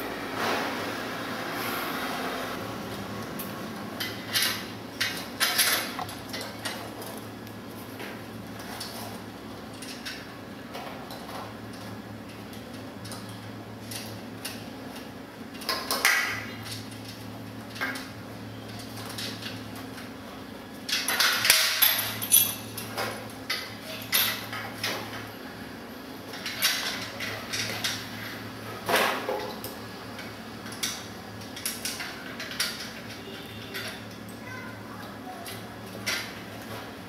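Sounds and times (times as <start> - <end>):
metal parts clinking and clattering: 4.0 - 7.2, 20.9 - 25.0.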